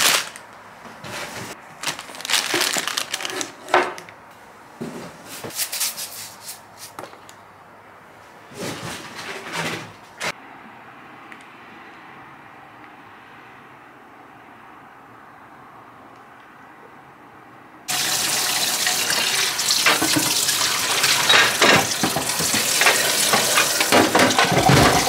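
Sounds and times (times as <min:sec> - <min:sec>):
plastic packaging rustling: 0:00.0 - 0:04.1.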